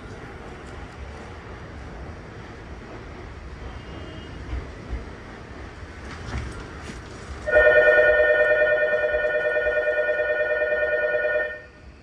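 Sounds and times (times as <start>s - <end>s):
electronic departure bell: 7.5s - 11.8s.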